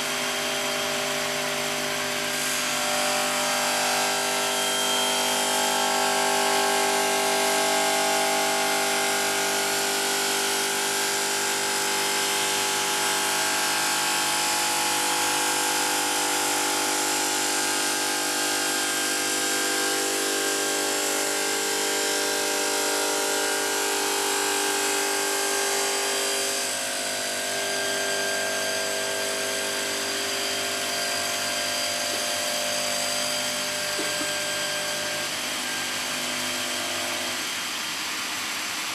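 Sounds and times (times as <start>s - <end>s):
saw motor whine: 0.0s - 38.9s
blade grinding stone: 29.8s - 35.8s.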